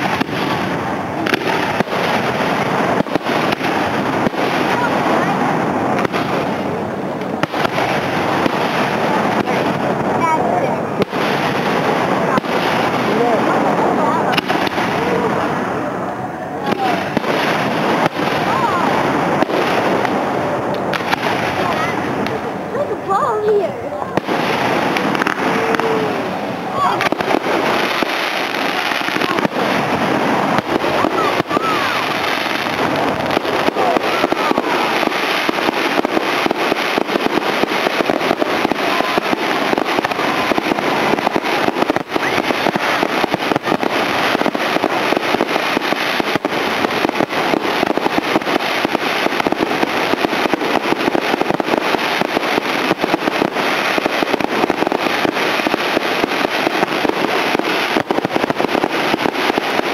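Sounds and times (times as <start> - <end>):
fireworks bangs and crackle: 0.0 - 59.9.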